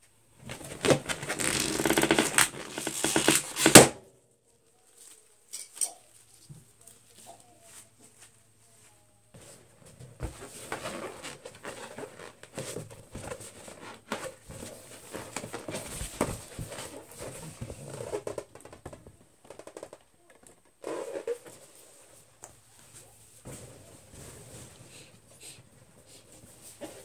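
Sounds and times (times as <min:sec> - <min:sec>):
balloons rubbing and squeaking: 0:00.4 - 0:03.9, 0:10.2 - 0:18.9, 0:20.8 - 0:22.1.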